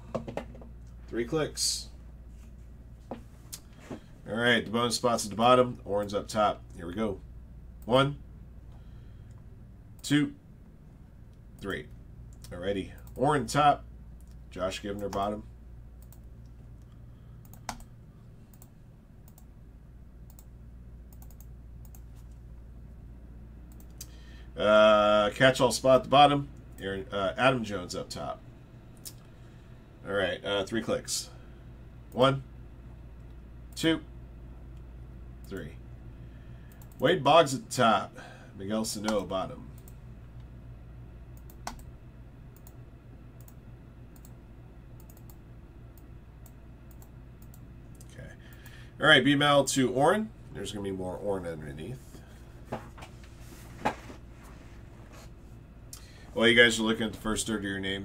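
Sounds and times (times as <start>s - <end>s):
low steady hum: 0.0s - 58.0s
keyboard and mouse clicks: 17.4s - 17.9s, 21.1s - 22.1s, 41.4s - 41.9s
computer mouse and keyboard clicks: 21.1s - 22.4s.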